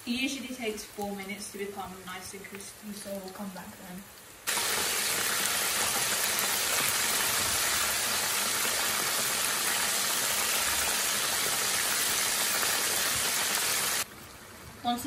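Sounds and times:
chicken deep-frying in oil: 0.0 - 15.0.

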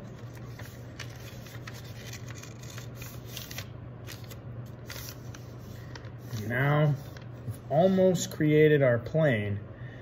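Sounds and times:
paper rustling and crinkling: 0.0 - 7.6
steady low hum: 0.0 - 10.0.

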